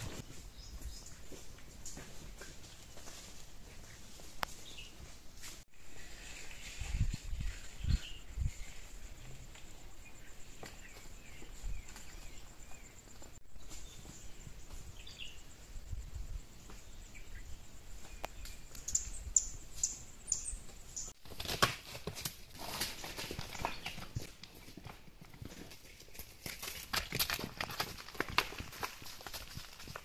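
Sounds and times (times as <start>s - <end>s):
small birds chirping: 10.0s - 21.2s.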